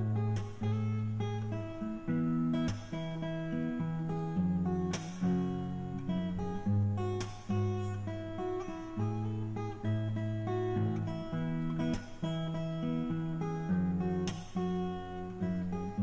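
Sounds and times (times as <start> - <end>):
acoustic guitar strumming chords: 0.0 - 16.0.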